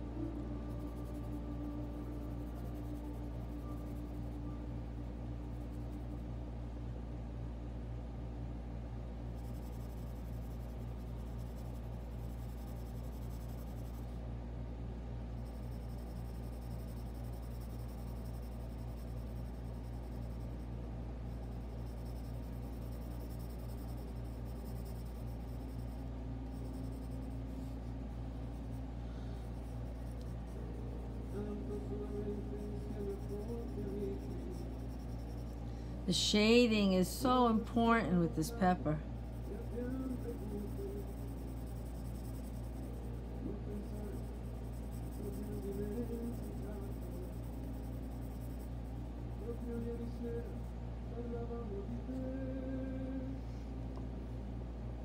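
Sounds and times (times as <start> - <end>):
low hum: 0.0 - 55.0
pencil scratching on paper: 9.4 - 14.1, 15.4 - 20.6, 21.4 - 35.6, 39.2 - 50.0.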